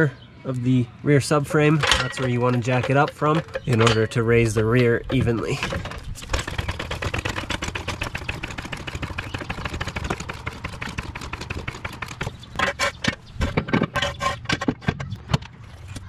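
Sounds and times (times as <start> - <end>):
metal clanks of jack stand: 1.6 - 6.0
floor jack rapid clicks: 4.8 - 12.5.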